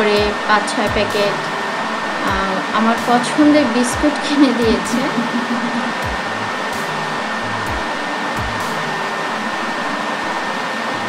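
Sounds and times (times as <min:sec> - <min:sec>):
fan whooshing with high whine: 0:00.0 - 0:11.0
soft low thumps: 0:04.0 - 0:06.8.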